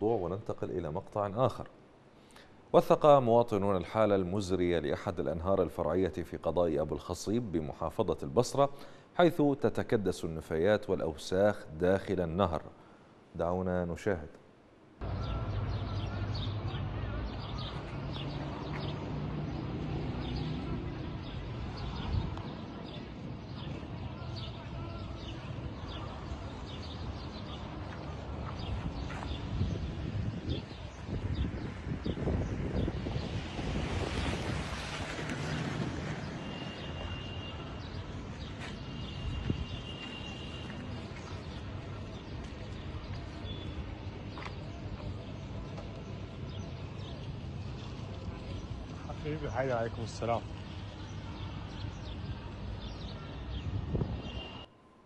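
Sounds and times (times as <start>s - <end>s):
small birds chirping: 15.0s - 54.7s
wind on microphone: 20.9s - 24.7s, 25.4s - 36.9s, 53.6s - 54.5s.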